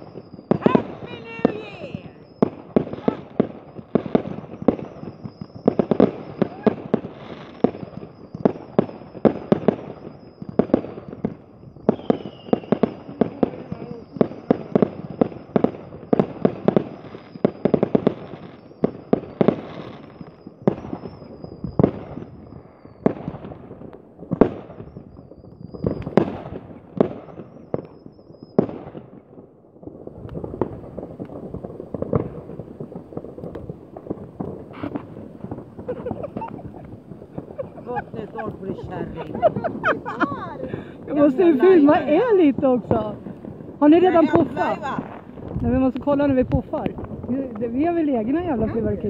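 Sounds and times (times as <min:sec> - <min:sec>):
high firework whistle: 0:00.0 - 0:23.6, 0:24.4 - 0:29.0, 0:31.9 - 0:42.5
fireworks bangs and cracks: 0:00.0 - 0:49.0.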